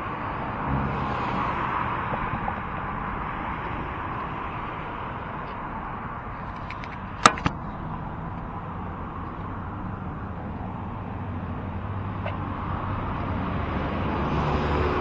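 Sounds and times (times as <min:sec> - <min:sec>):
street traffic noise: 0:00.0 - 0:15.0
sharp knocks: 0:06.6 - 0:07.6
car driving past: 0:10.8 - 0:15.0.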